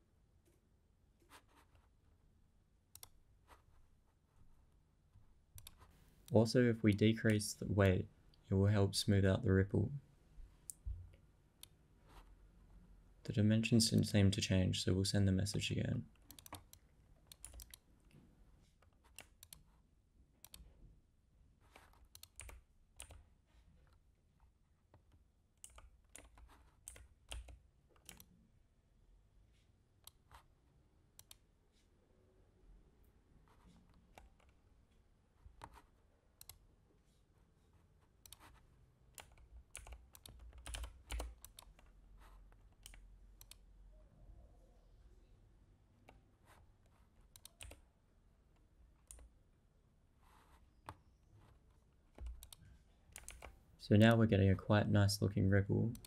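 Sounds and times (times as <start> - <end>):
mouse clicks: 5.6 - 5.8, 21.8 - 23.2, 31.2 - 31.4, 36.4 - 36.6, 38.2 - 38.6, 42.8 - 43.6, 47.3 - 47.8, 52.2 - 53.6
keyboard typing: 5.6 - 5.9, 16.1 - 17.8, 21.6 - 23.2, 25.0 - 28.3, 38.2 - 43.6, 46.9 - 47.9, 52.1 - 54.1.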